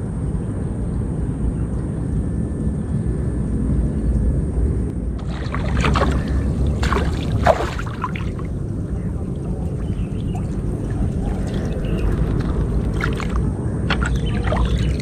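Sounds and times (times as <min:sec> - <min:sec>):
steady low rumble: 0:00.0 - 0:15.0
water splashing and pouring: 0:05.2 - 0:15.0.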